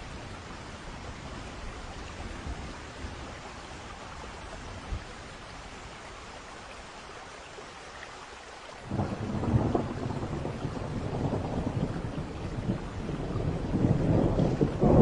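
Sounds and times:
rain hissing: 0.0s - 15.0s
thunder rumbling: 8.9s - 15.0s.

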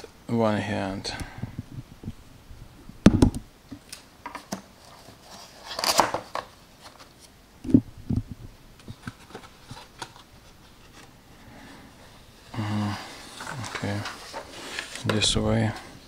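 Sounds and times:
dull thumps: 3.0s - 3.4s
cardboard rustling scrape: 4.6s - 7.3s, 8.8s - 16.0s.

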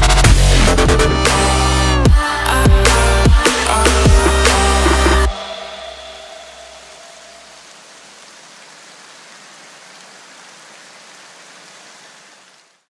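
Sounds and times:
steady hiss of noise: 5.4s - 12.9s.

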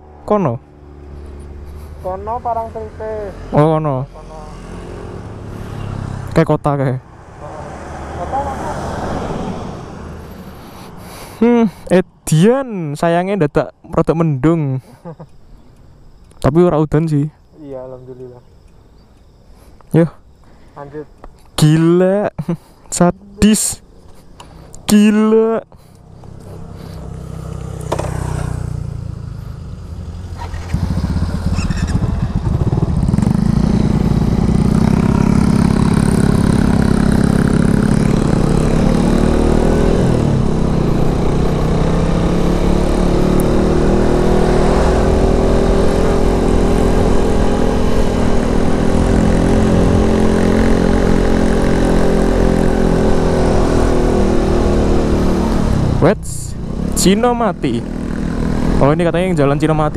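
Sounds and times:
motorcycle engine accelerating: 0.0s - 11.7s, 26.0s - 59.9s.

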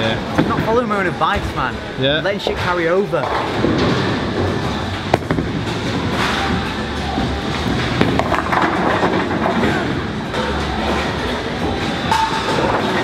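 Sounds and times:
busy bowling alley rumble: 0.0s - 13.0s
bowling ball rolling down lane: 3.2s - 13.0s
bowling pins clattering: 3.2s - 13.0s.

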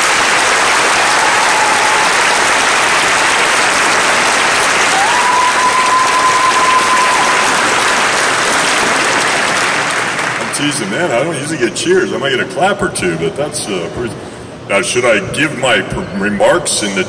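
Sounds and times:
audience applauding and cheering: 0.0s - 10.7s
crowd whistles: 4.8s - 7.8s.

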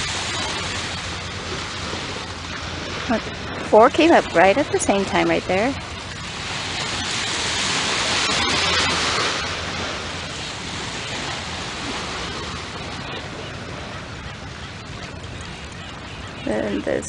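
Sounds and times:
small waves: 0.0s - 17.0s.

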